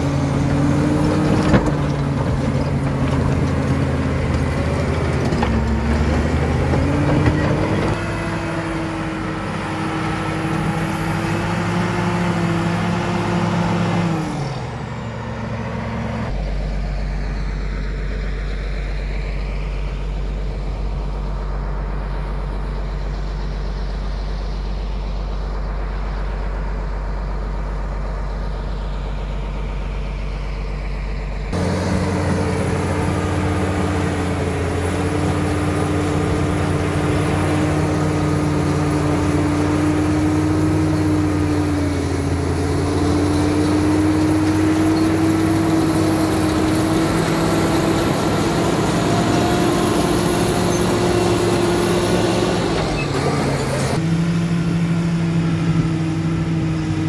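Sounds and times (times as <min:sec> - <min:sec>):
blade pushing earth and rock: 0:00.0 - 0:08.3
bulldozer diesel engine: 0:00.0 - 0:57.0.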